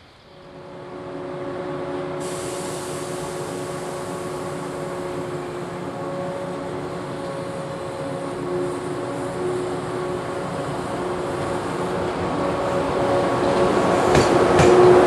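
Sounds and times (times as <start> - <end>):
electric train humming: 0.0 - 15.0
sharp hiss: 2.1 - 5.9.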